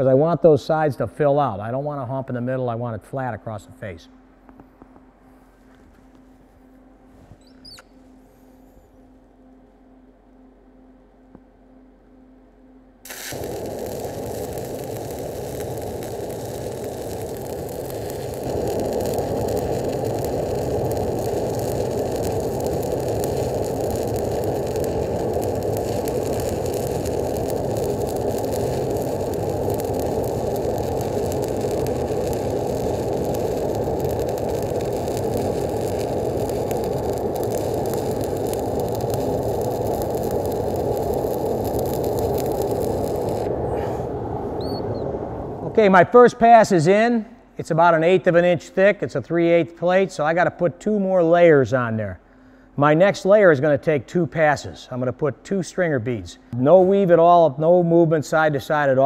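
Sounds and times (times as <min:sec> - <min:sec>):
welding arc crackling: 0:13.0 - 0:44.1.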